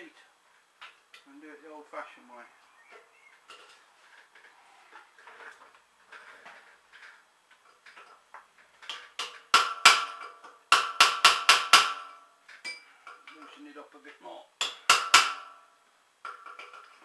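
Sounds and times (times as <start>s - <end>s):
hammer tapping metal: 9.2s - 12.8s, 14.6s - 15.5s.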